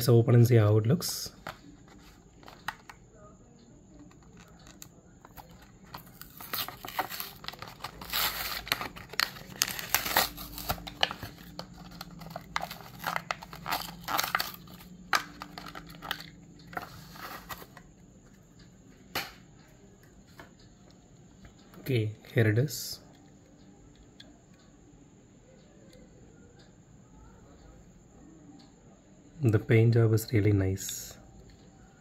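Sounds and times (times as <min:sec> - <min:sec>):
plastic blister crinkling: 0:04.0 - 0:17.8
cardboard tearing: 0:06.0 - 0:11.1, 0:12.2 - 0:14.6.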